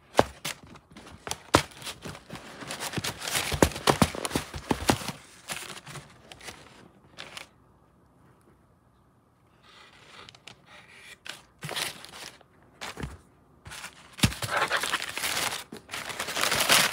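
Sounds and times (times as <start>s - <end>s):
crumpled paper crackling and rustling: 0.1s - 7.5s, 11.2s - 16.9s.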